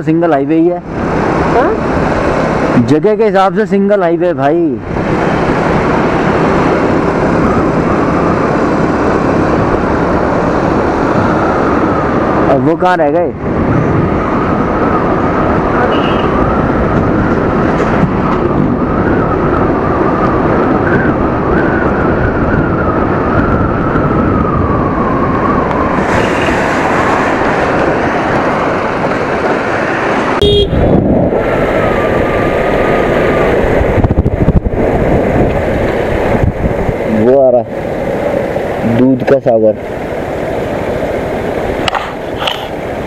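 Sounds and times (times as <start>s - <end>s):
wind and road noise: 0.0s - 43.0s.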